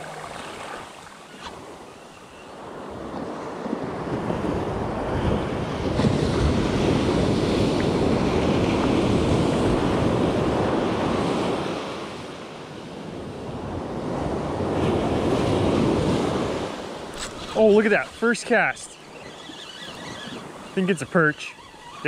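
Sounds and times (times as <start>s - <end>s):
ocean surf on beach: 0.0s - 22.0s
wind buffeting microphone: 2.6s - 12.2s.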